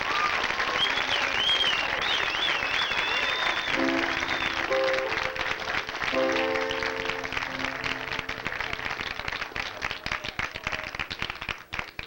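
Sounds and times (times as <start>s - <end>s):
audience applause: 0.0s - 12.0s
blues band sustained chord: 3.6s - 10.0s.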